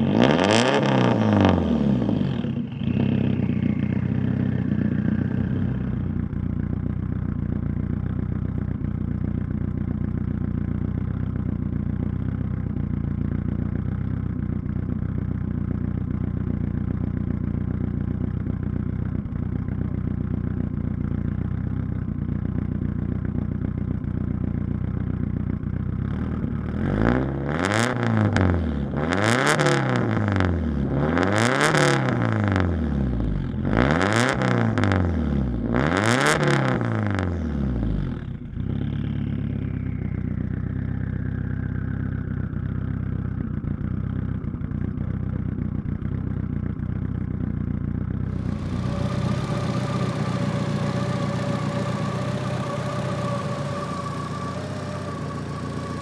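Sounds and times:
engine revving: 0.0 - 6.5, 26.0 - 42.6, 48.2 - 56.0
car engine idling: 0.0 - 29.1, 36.9 - 56.0
faint falling whistle: 2.7 - 4.9, 48.4 - 56.0.

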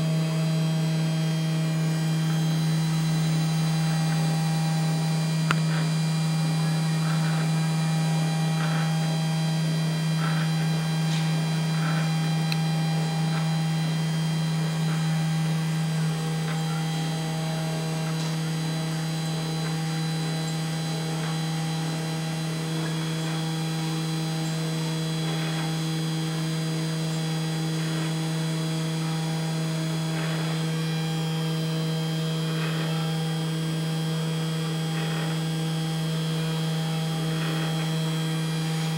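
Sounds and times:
spindle motor hum: 0.0 - 38.9.

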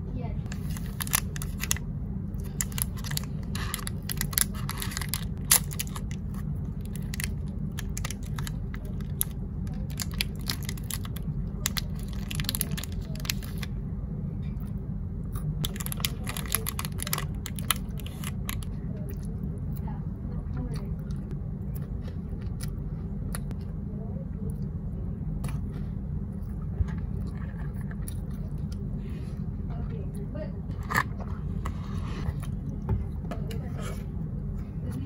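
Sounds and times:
low hum: 0.0 - 35.0
small crackles and clicks: 15.6 - 19.2.

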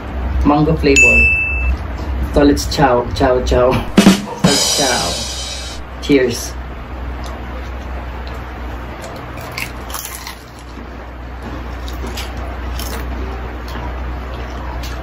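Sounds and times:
crunchy chewing: 7.2 - 15.0.

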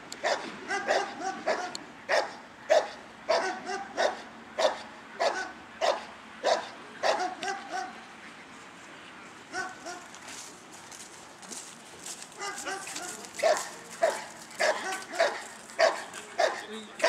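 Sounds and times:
dog barking: 0.2 - 8.0, 9.5 - 10.1, 12.4 - 16.7.

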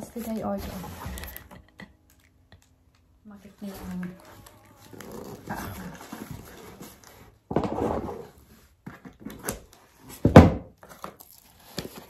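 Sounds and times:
cardboard ripping: 3.8 - 8.4, 10.8 - 12.0.

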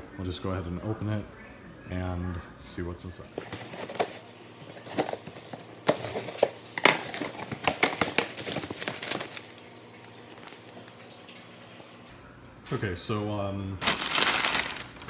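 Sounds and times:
packing paper crackling: 3.3 - 11.2, 13.8 - 15.0.

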